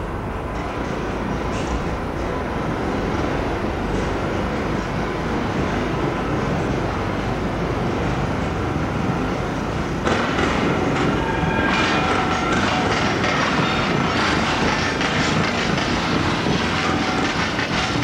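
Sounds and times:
train wheels clattering over rails: 0.0s - 18.0s.

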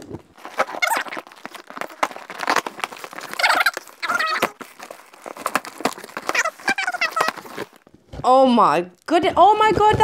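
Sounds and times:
packaging crackling and rustling: 0.0s - 8.2s
woman's nervous vocal sounds: 3.2s - 4.6s.

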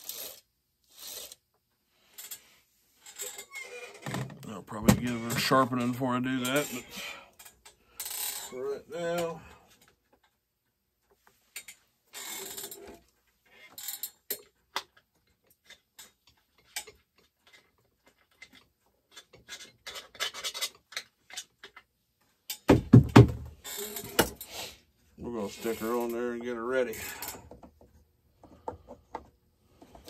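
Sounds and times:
heavy knocks: 22.7s - 23.5s
metal scraping: 25.2s - 27.4s.

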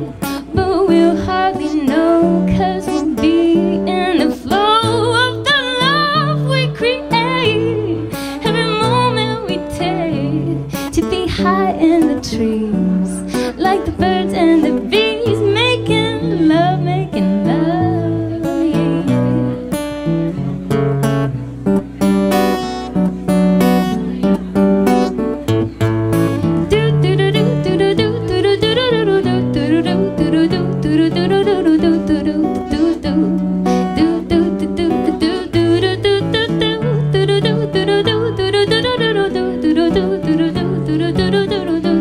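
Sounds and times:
woman singing into a microphone: 0.0s - 20.1s, 26.4s - 42.0s
acoustic guitar: 0.0s - 42.0s.

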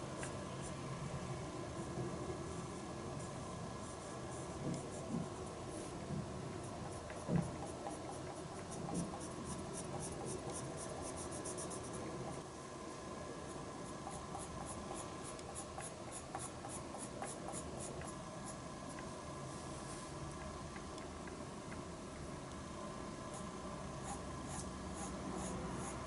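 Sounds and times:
pencil scratching on paper: 6.6s - 12.1s, 13.8s - 18.6s, 23.3s - 26.0s.

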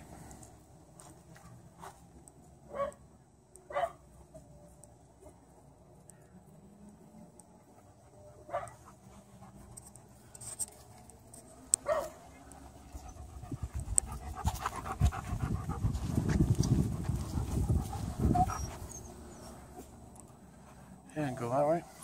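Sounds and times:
dog panting: 7.4s - 21.0s.

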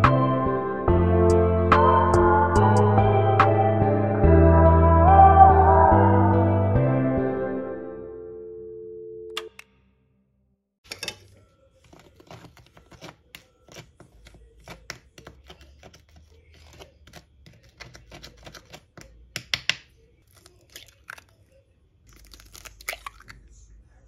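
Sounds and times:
spatula scraping dry cake mix: 10.9s - 19.4s.

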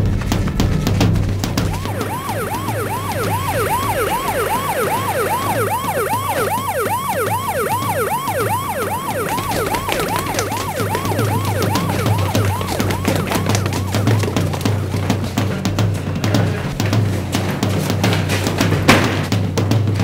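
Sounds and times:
police siren sweeping: 1.4s - 15.5s.

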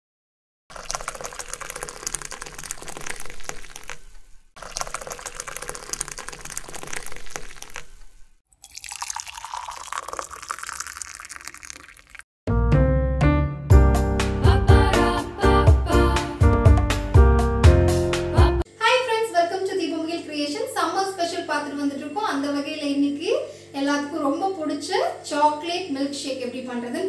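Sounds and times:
liquid pouring into a glass: 0.7s - 12.2s.

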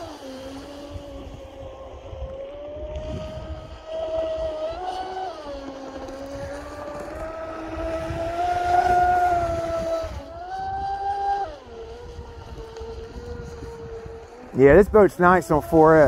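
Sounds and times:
motor and propeller whine: 0.0s - 16.0s.

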